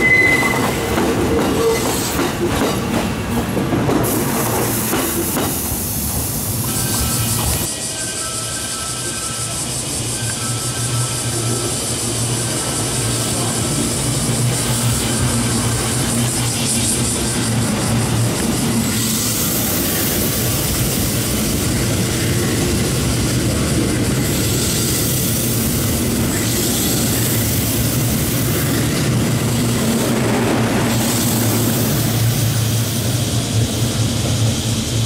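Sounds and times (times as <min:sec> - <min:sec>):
train running hum: 0:00.0 - 0:35.0
wheels rumbling on rails: 0:10.8 - 0:35.0.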